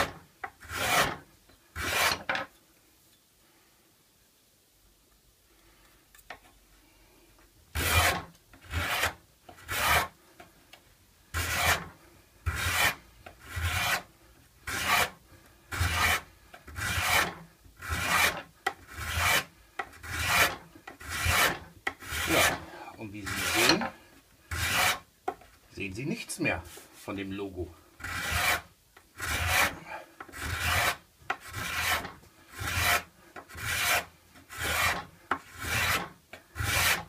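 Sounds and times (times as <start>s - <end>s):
card scraper scraping wood: 0.0s - 1.2s, 1.8s - 2.4s, 7.7s - 10.1s, 11.4s - 11.9s, 12.5s - 25.0s, 28.0s - 37.0s.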